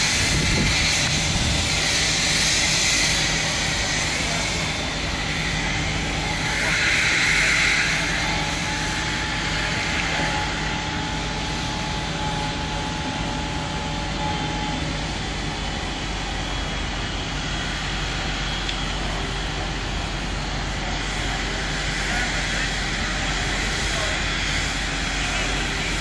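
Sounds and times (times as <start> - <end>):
hose nozzle hissing foam: 0.0 - 12.2
fire truck engine drone: 0.0 - 26.0.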